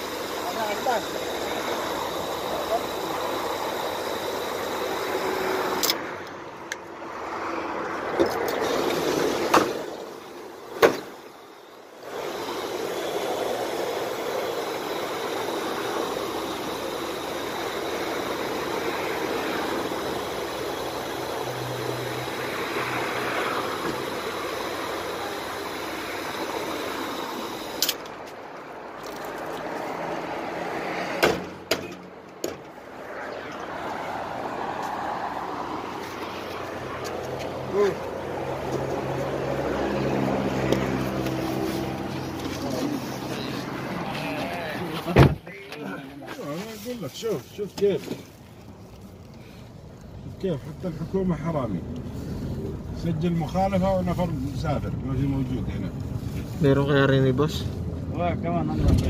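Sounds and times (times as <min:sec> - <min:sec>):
water gushing into plastic jugs: 0:29.0 - 0:29.9
sharp knocks: 0:31.2 - 0:32.6.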